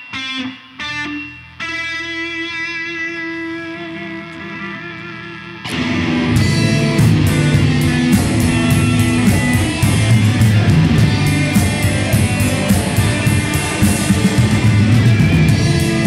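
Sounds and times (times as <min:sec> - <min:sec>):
bass guitar: 0:00.0 - 0:16.0
electric guitars: 0:00.0 - 0:16.0
drum kit with cymbals: 0:05.7 - 0:16.0.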